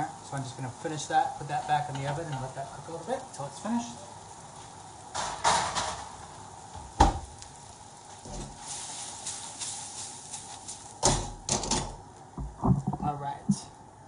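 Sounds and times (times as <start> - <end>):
vegetables sizzling in a wok: 0.0 - 12.4
wok knocking: 11.0 - 13.2.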